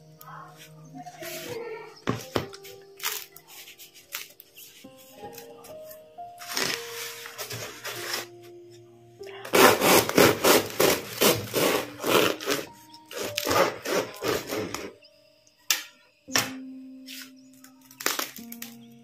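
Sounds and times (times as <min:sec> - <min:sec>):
knife sawing crispy bread crust: 0:09.5 - 0:14.9.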